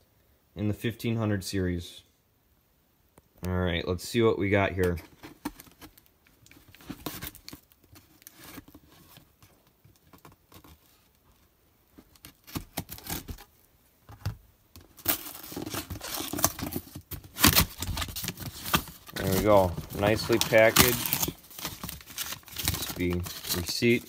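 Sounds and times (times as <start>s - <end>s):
cardboard tearing and crinkling: 12.2s - 13.5s, 14.8s - 24.0s.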